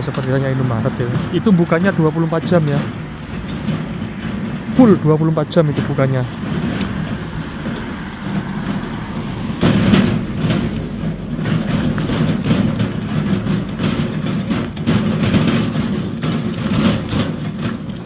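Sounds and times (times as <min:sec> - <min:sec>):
steady low rumble: 0:00.0 - 0:18.0
car driving past: 0:02.8 - 0:13.9.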